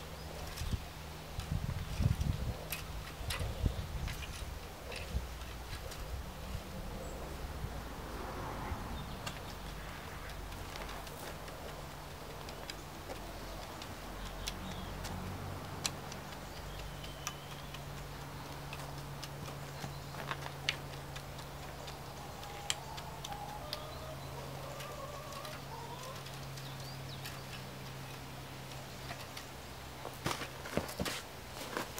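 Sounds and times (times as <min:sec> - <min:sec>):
sharp clicks and ticks: 0:09.1 - 0:30.0.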